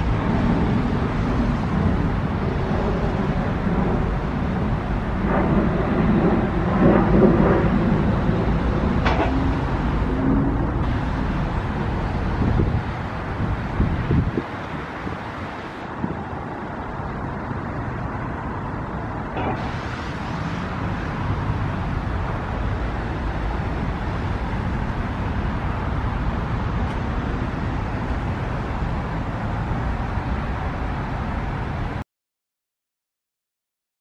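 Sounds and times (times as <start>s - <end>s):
low rumble: 0.0s - 15.0s
road traffic hum: 0.0s - 32.0s.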